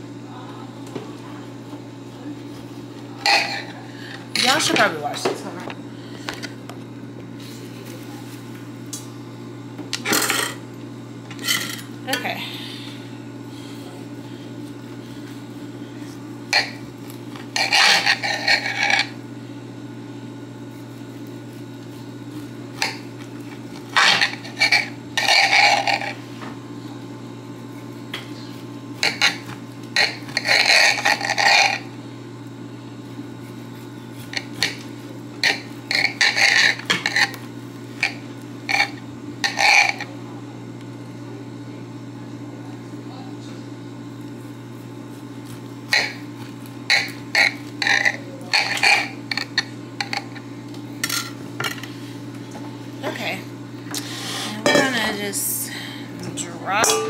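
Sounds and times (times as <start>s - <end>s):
steady low hum: 0.0s - 57.0s
knife and dishes clinking: 3.2s - 3.7s, 17.5s - 19.1s, 29.0s - 31.9s, 35.4s - 37.4s, 45.9s - 46.3s, 46.9s - 50.4s, 54.6s - 55.2s, 56.8s - 57.0s.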